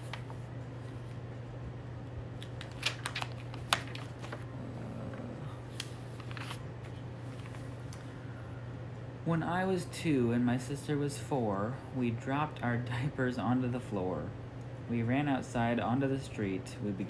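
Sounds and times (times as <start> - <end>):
steady low hum: 0.0 - 17.0
paper pages flicking: 2.4 - 4.4, 5.7 - 7.7.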